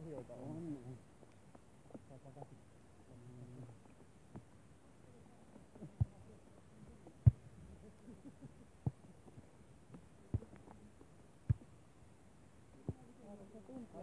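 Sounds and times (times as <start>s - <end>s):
hands thumping volleyball: 11.5s - 11.7s.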